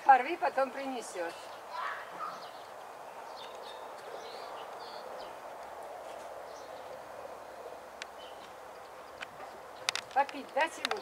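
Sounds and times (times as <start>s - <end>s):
small birds chirping: 0.0s - 11.0s
steady background hiss: 0.0s - 11.0s.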